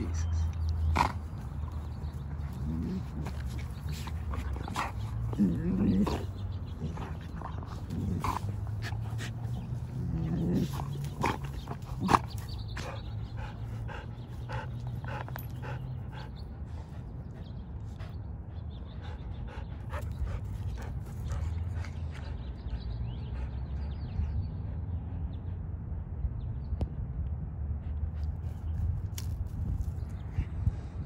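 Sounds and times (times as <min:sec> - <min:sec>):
dogs growling: 0:00.0 - 0:16.4
dogs panting: 0:00.0 - 0:25.4.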